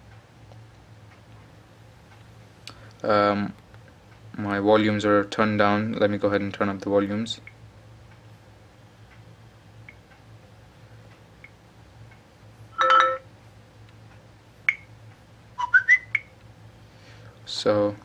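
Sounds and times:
phone speaker preview tone: 0:12.8 - 0:13.2.

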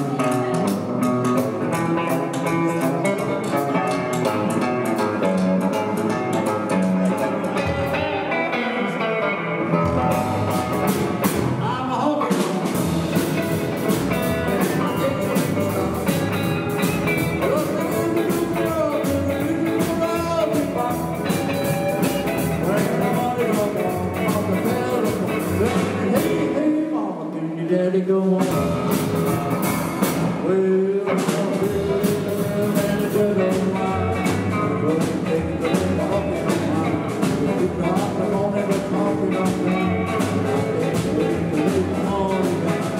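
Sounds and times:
upright double bass: 0:00.0 - 0:08.8, 0:09.6 - 0:26.8, 0:27.7 - 0:42.9
acoustic guitar: 0:00.0 - 0:42.9
electric guitar: 0:00.0 - 0:42.9
steady drum beat: 0:09.8 - 0:26.6, 0:28.4 - 0:42.9.

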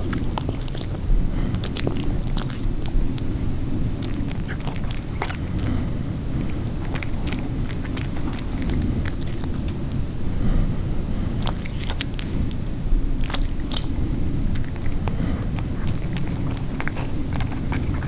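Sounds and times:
cat chewing bone: 0:00.0 - 0:18.0
cat licking lips: 0:00.0 - 0:18.0
steady low rumble: 0:00.0 - 0:18.0.

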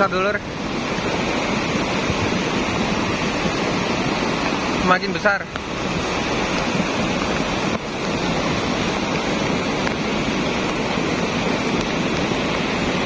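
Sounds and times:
mudflow rushing: 0:00.0 - 0:13.0.

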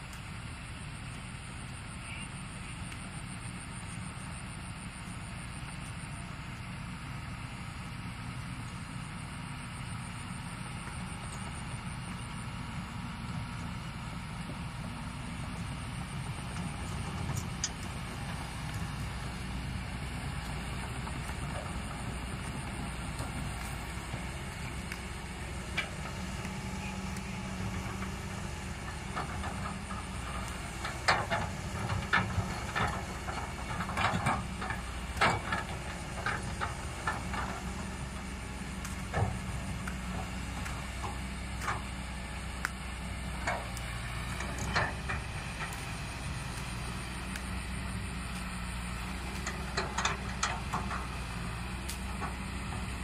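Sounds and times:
heavy engine idling: 0:00.0 - 0:53.0
sharp clicks and knocks: 0:43.4 - 0:52.9.

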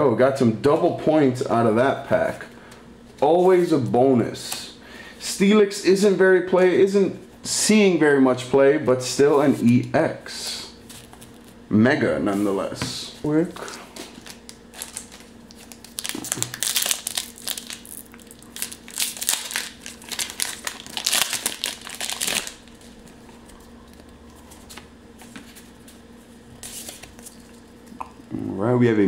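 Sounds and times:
handling of cards: 0:10.8 - 0:11.6, 0:13.5 - 0:28.0
foil wrapper crinkling and tearing: 0:14.1 - 0:23.2.

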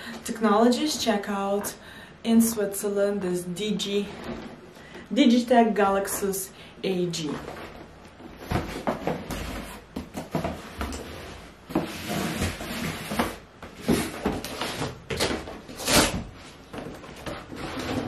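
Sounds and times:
cardboard box scraping and rustling: 0:07.4 - 0:18.0.

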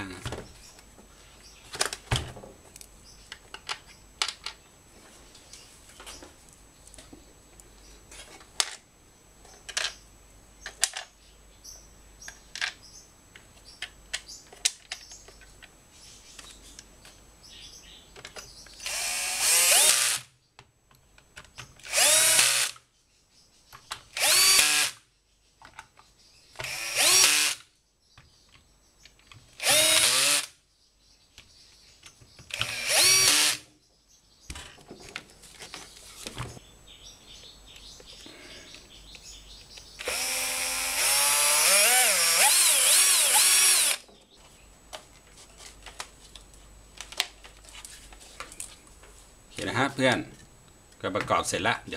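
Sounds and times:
cordless drill driving screws: 0:18.8 - 0:20.3, 0:21.8 - 0:22.8, 0:24.2 - 0:25.0, 0:26.6 - 0:27.6, 0:29.6 - 0:30.5, 0:32.5 - 0:33.6, 0:40.0 - 0:44.0.

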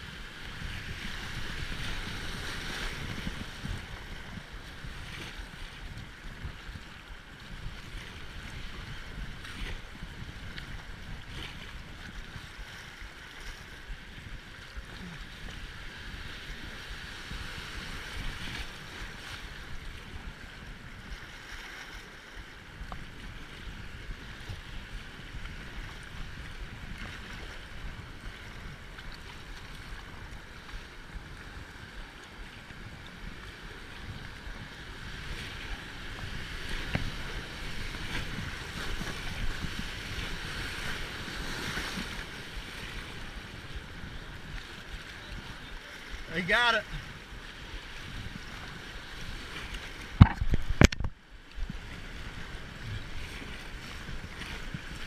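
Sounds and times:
wind buffeting microphone: 0:00.0 - 0:46.3, 0:46.9 - 0:55.0
rushing whitewater: 0:44.4 - 0:47.1.

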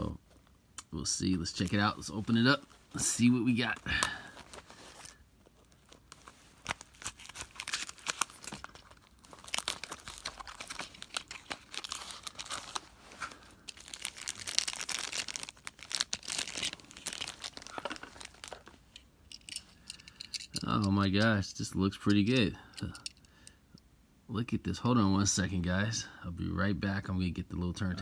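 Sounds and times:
plastic bag crinkling and tearing: 0:01.5 - 0:18.8.

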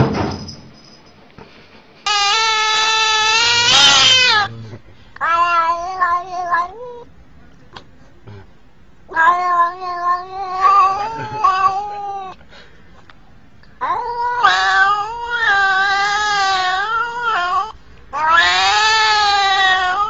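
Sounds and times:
cat yowling: 0:02.1 - 0:04.6, 0:05.2 - 0:07.1, 0:09.1 - 0:12.4, 0:13.8 - 0:20.0.

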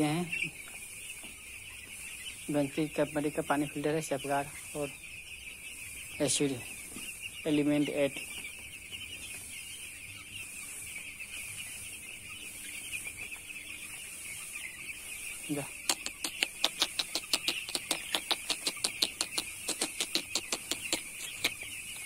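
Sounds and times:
chicks peeping: 0:00.0 - 0:22.0
fast sharp clicks: 0:15.9 - 0:21.6.

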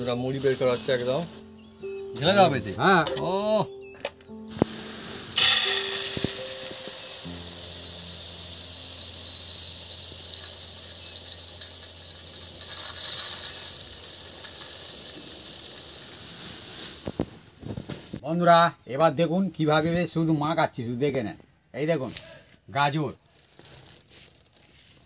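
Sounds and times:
puffed rice poured into metal bowl: 0:04.5 - 0:17.4, 0:23.3 - 0:25.0.

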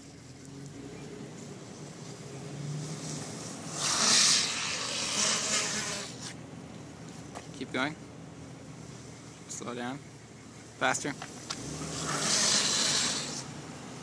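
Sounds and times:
longboard wheels rolling on asphalt: 0:00.0 - 0:07.6, 0:11.2 - 0:14.0
loud rushing hiss: 0:02.8 - 0:06.4, 0:11.3 - 0:13.6.

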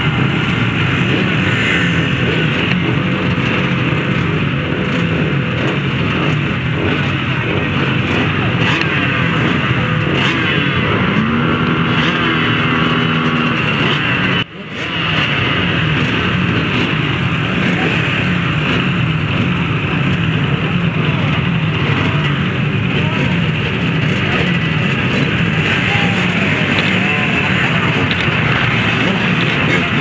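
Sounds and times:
motorcycles idling and revving: 0:00.0 - 0:30.0.

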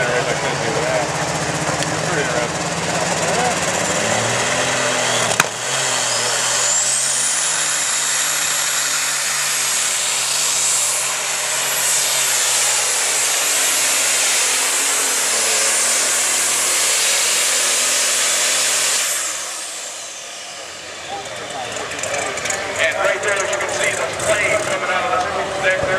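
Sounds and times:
diesel engine at full throttle: 0:00.0 - 0:25.9
high turbo whine: 0:00.0 - 0:25.9
sharp crack: 0:05.2 - 0:05.6.

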